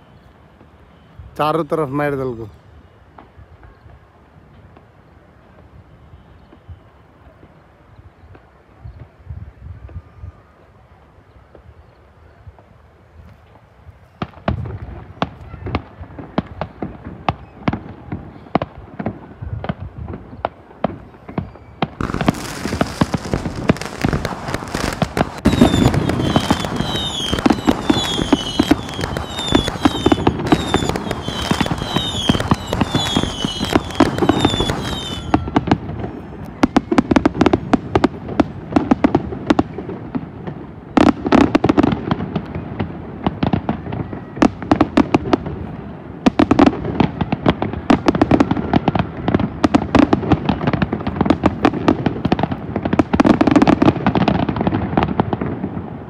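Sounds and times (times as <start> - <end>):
fireworks crackling: 12.6 - 56.0
deep fireworks booms: 14.2 - 56.0
high chirping whistle: 21.2 - 35.6.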